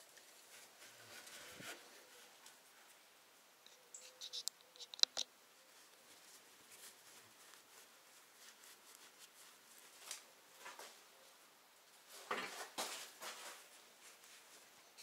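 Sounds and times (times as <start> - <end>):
rag rustling in hands: 0.0 - 3.0, 5.6 - 11.3, 11.9 - 14.9.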